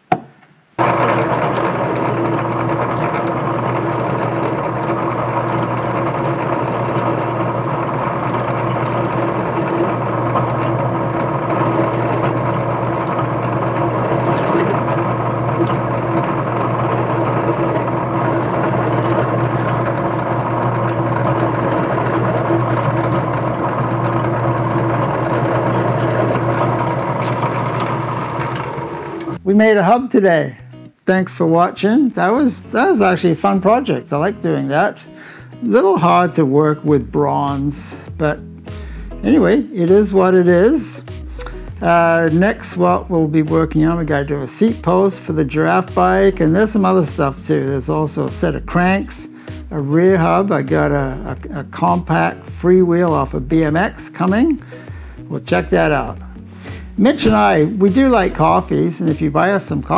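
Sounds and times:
drill press motor hum: 0.1s - 29.4s, 53.6s - 58.6s.

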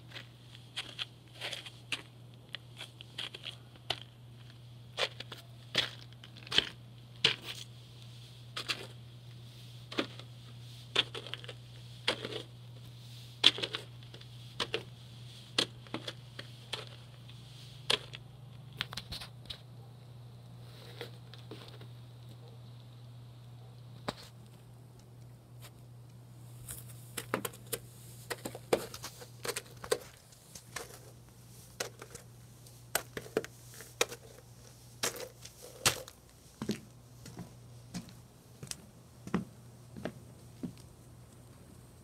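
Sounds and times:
footsteps crunching on snow: 0.0s - 2.2s, 27.9s - 39.4s
low steady hum: 0.0s - 42.0s.

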